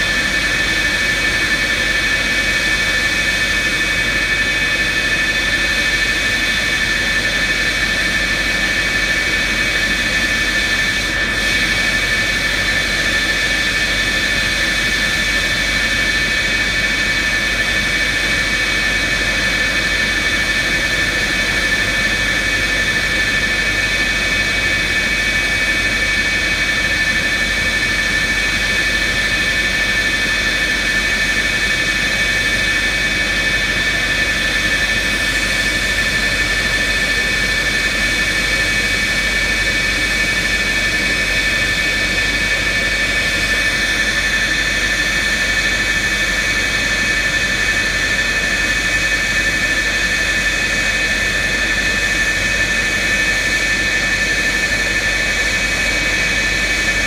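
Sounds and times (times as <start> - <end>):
jet turbine whine: 0.0 - 57.0.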